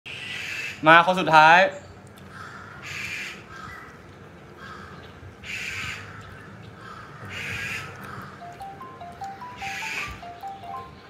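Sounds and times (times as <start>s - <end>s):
crow cawing: 2.3s - 3.9s, 4.6s - 8.5s
simple stepped-note tune: 8.4s - 11.0s.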